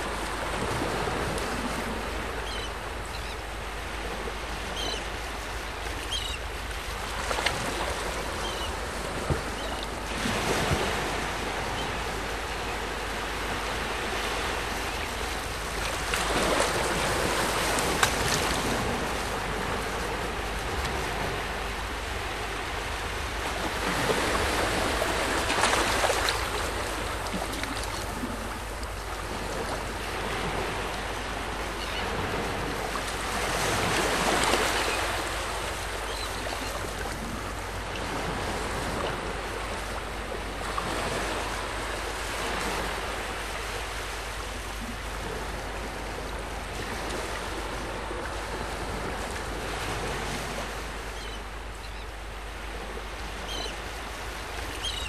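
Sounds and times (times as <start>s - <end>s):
water washing around hull: 0.0s - 55.0s.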